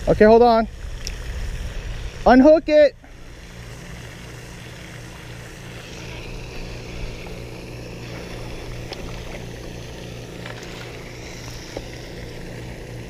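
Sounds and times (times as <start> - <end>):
fountain hum and hiss: 0.0 - 13.0.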